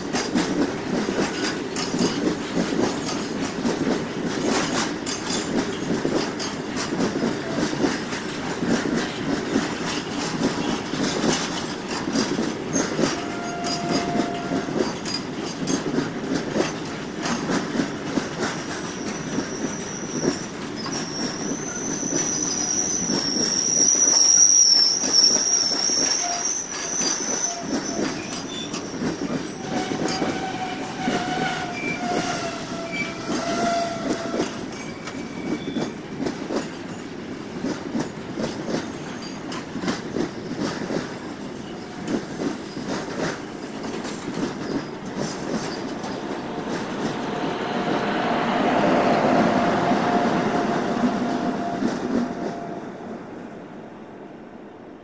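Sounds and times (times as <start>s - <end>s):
high metallic squeal: 12.7s - 15.2s, 19.0s - 35.9s, 44.6s - 52.8s
freight wagons rumbling: 26.2s - 52.8s
lower wavering squeal: 45.8s - 51.9s.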